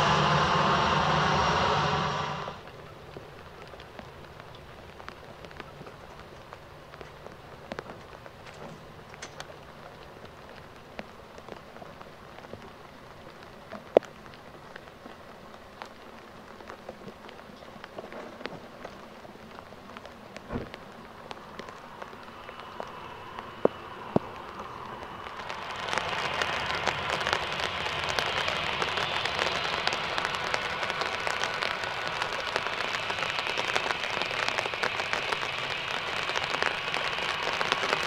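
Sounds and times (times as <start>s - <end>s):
jet engines whining: 0.0s - 2.6s, 21.5s - 38.0s
rain falling: 0.0s - 38.0s
raindrops ticking close by: 2.6s - 38.0s.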